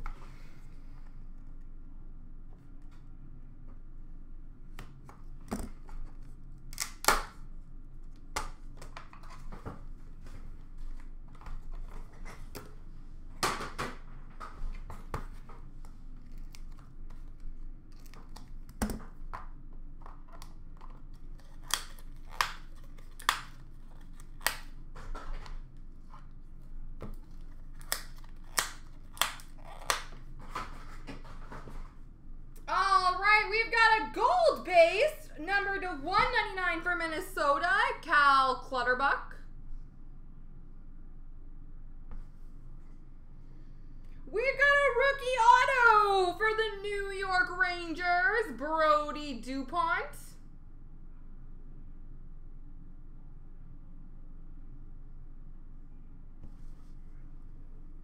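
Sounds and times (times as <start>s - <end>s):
packaging clicks and snaps: 20.3s - 24.8s, 27.2s - 30.2s
cardboard and plastic rustling: 27.1s - 32.0s.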